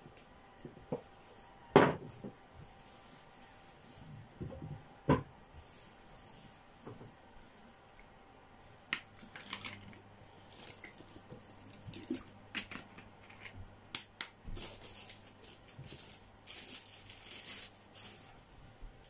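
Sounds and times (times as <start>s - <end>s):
plastic packaging clicking and crackling: 8.9s - 18.4s
plastic rustling: 9.0s - 13.6s, 14.4s - 18.6s.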